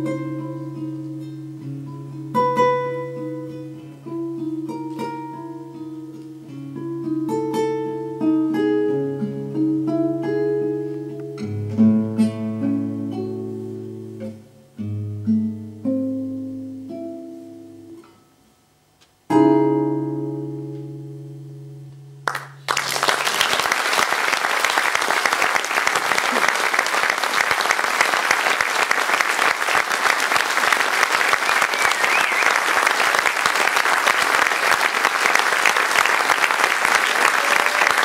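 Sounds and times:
classical guitar: 0:00.0 - 0:22.6
audience applause: 0:22.3 - 0:38.0.

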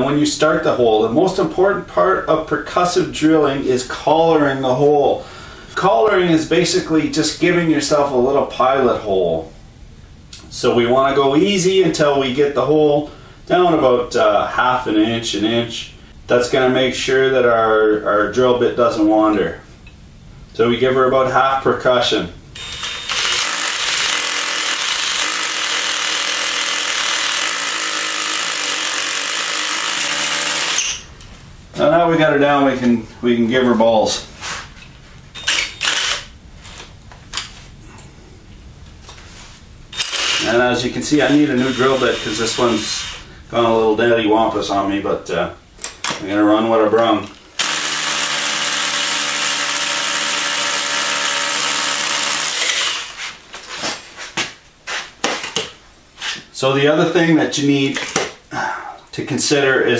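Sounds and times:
rotary hammer drilling into concrete: 0:22.6 - 0:31.0, 0:35.4 - 0:36.3, 0:40.0 - 0:40.5, 0:41.5 - 0:43.1, 0:47.6 - 0:53.2.

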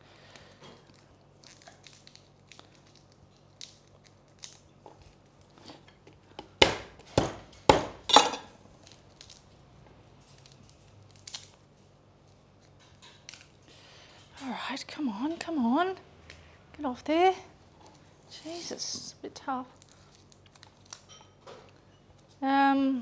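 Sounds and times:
garlic skins crackling: 0:00.3 - 0:06.3, 0:08.6 - 0:13.6, 0:17.9 - 0:21.2.

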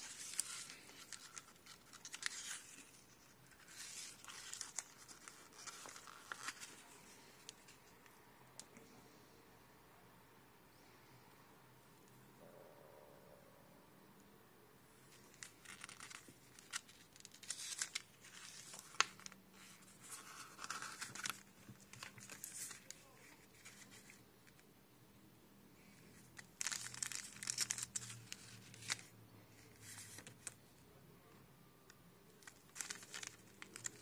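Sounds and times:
paper pages rustling: 0:00.0 - 0:08.2, 0:15.1 - 0:24.6, 0:25.8 - 0:30.6, 0:32.4 - 0:34.0.

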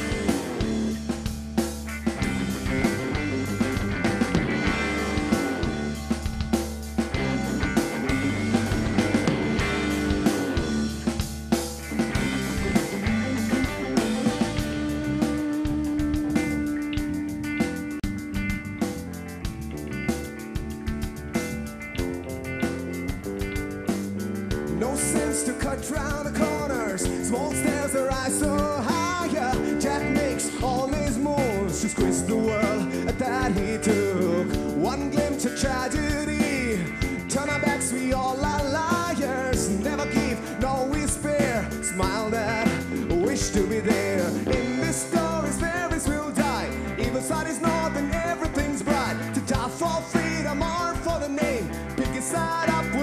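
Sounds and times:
bass guitar: 0:00.0 - 0:53.0
drums: 0:00.0 - 0:53.0
electric guitar: 0:00.0 - 0:53.0
man singing: 0:24.7 - 0:53.0.

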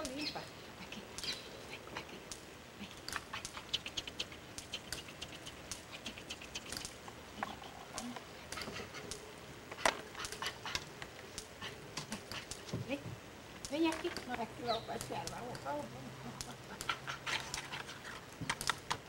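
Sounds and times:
chimpanzee lip-smacking: 0:00.8 - 0:12.8, 0:13.6 - 0:19.0.

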